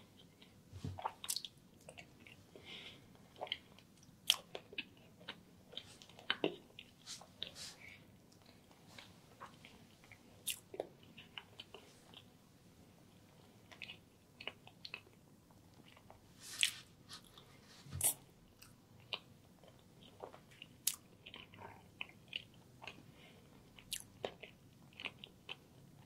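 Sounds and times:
person chewing food: 3.2s - 7.6s, 13.6s - 26.0s.

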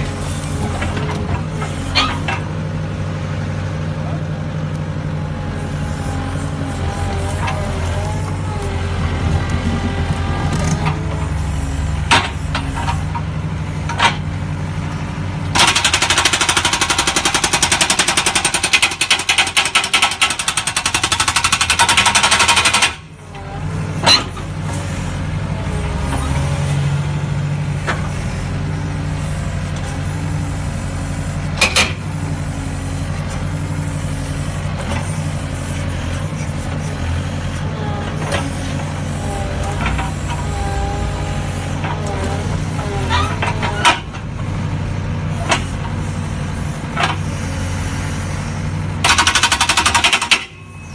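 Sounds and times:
excavator engine running: 0.0s - 50.9s
hydraulic breaker hammering rock: 15.5s - 23.1s, 49.0s - 50.9s.

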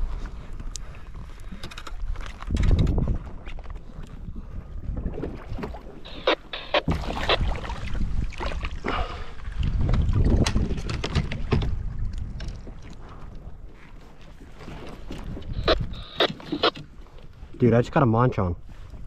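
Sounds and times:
wind rumbling on microphone: 0.0s - 19.0s
water splashing: 5.0s - 13.0s, 14.6s - 16.8s.

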